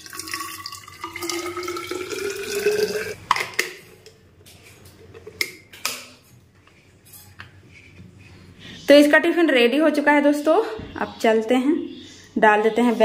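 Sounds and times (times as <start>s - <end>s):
water pouring into bottle: 0.0s - 3.2s.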